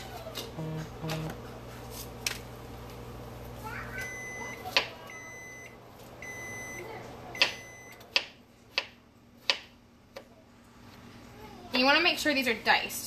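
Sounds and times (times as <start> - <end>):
microwave oven beeping: 0.6 - 1.4, 3.6 - 8.3
knife chopping on cutting board: 7.4 - 9.7.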